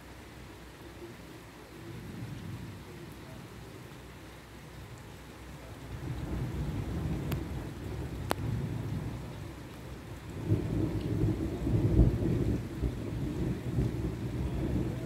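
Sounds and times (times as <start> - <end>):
thunder rumbling: 5.8 - 15.0.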